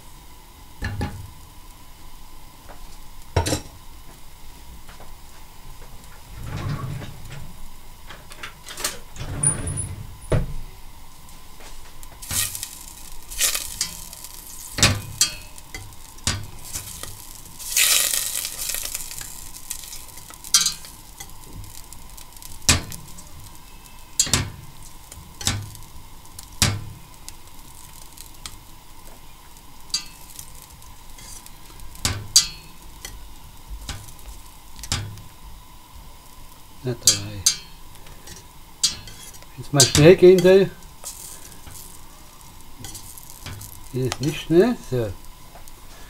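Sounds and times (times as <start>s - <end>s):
butter sizzling: 0.0s - 6.4s, 7.0s - 46.0s
whisk scraping a metal pot: 37.1s - 42.0s, 42.8s - 43.9s.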